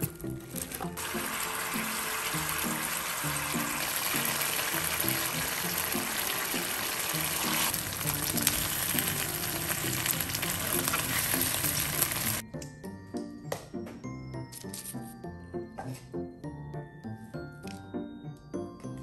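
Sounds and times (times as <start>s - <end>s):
food sizzling in a pan: 0.0s - 12.4s.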